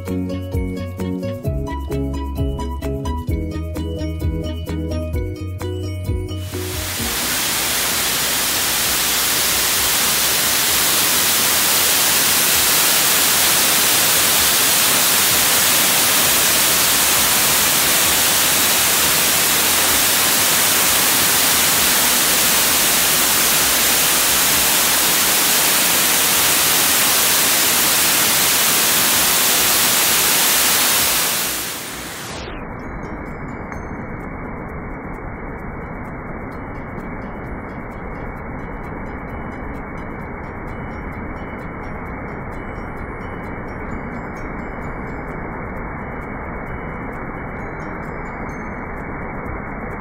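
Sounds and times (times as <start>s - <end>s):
water rushing over dam: 6.5s - 32.5s.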